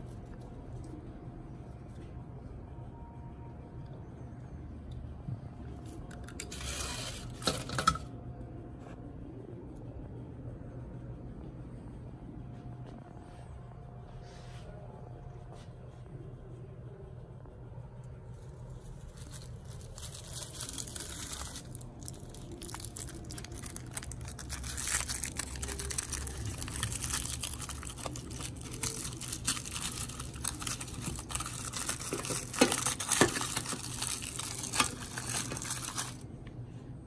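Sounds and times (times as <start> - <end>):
aluminium foil crinkling and tearing: 5.8 - 8.1, 18.2 - 36.2.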